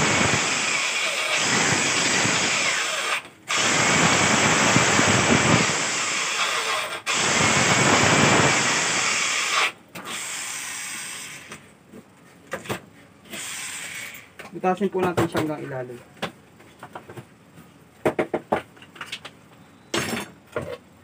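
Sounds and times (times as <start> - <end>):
electric drill boring through wood: 0.0 - 11.5, 13.3 - 14.2.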